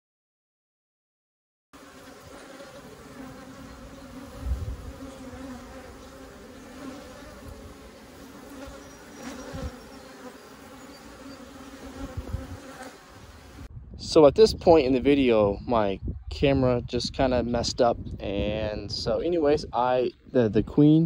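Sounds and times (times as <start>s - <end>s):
honey bees buzzing: 1.8s - 13.7s.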